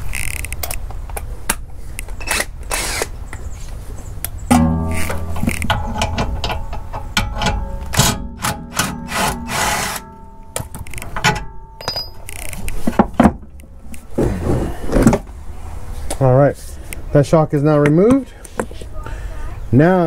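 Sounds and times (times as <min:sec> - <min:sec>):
power tool whirring: 0:02.3 - 0:03.1
metal clicks and clanks: 0:04.5 - 0:13.7.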